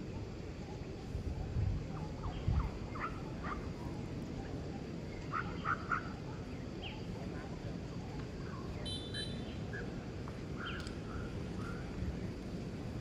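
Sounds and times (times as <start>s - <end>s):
steady low rumble: 6.2s - 13.0s.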